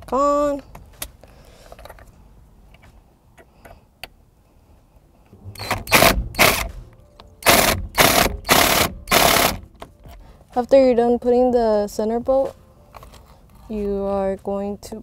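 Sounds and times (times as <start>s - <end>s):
ratchet tightening bolt: 5.6s - 6.7s, 7.4s - 9.7s.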